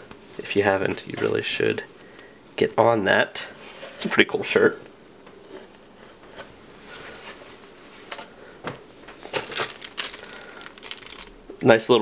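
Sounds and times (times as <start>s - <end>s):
hand rummaging in cardboard box: 9.3s - 11.3s.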